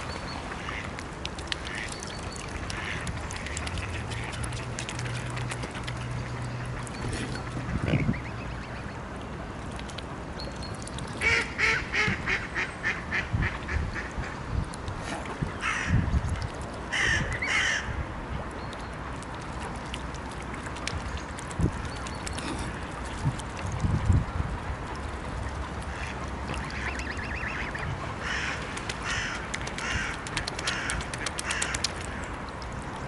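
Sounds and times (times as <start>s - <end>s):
waterfowl calling: 25.4s - 32.2s.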